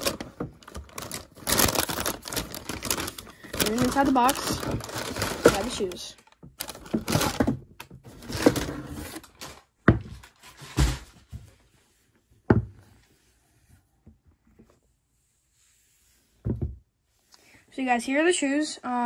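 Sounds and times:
tissue paper crinkling: 0.0s - 7.4s.

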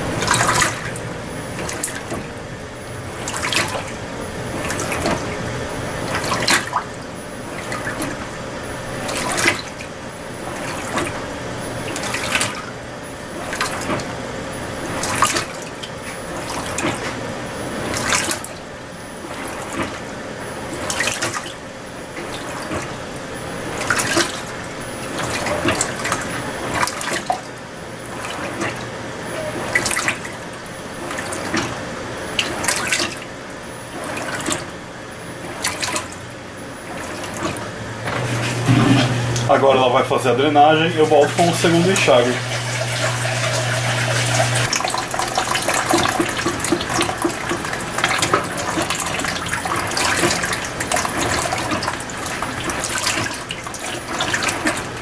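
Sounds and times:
faint motor hum: 0.0s - 55.0s
washing machine water sloshing: 0.0s - 55.0s.

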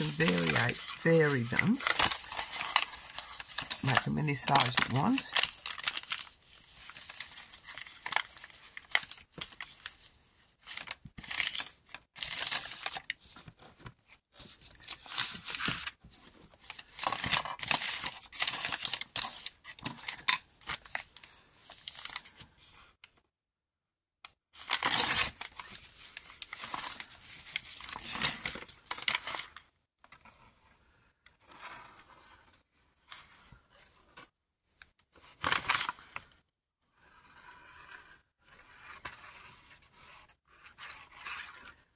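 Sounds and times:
packing paper crinkling: 0.0s - 10.0s, 10.6s - 13.5s, 14.4s - 22.3s, 24.6s - 29.6s.

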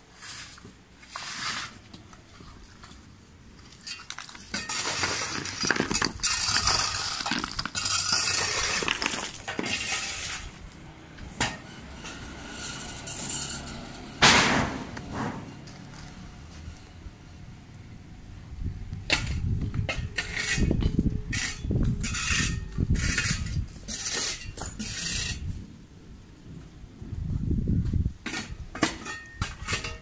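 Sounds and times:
bricks clattering: 3.6s - 10.6s.

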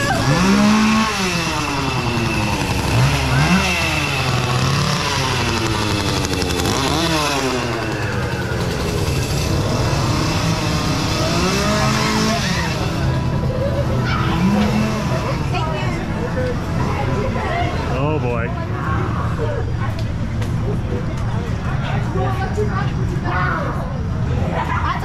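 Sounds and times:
chainsaws revving: 0.0s - 13.6s, 14.2s - 15.8s.

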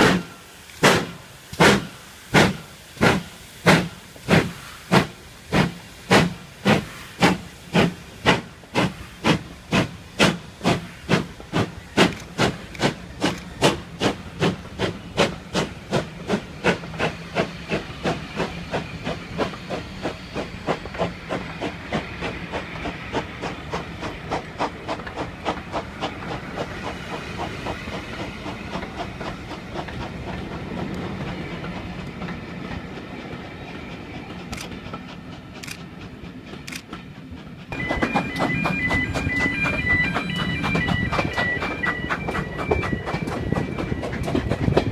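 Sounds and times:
steam locomotive exhaust beats: 0.0s - 44.9s
train wheel clicks: 0.0s - 44.9s.

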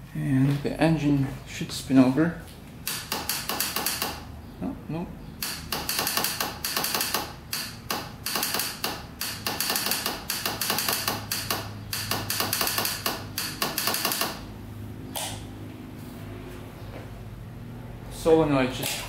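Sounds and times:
starter solenoid clicking rapidly: 5.4s - 14.4s.

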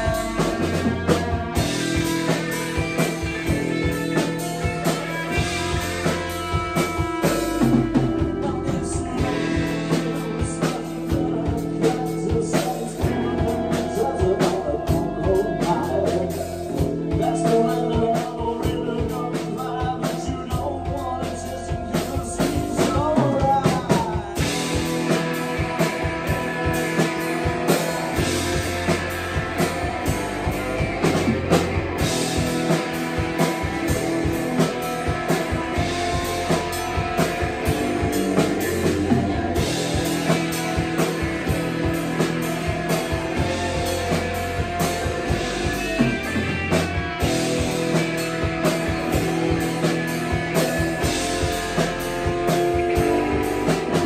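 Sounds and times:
bass and electric guitar: 0.0s - 54.0s
drum kit hits: 21.8s - 54.0s.

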